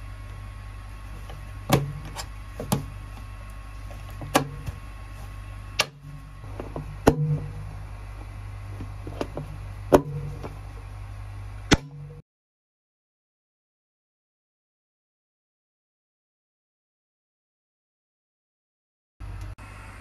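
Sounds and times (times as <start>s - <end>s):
steady low hum: 0.0s - 12.2s, 19.2s - 20.0s.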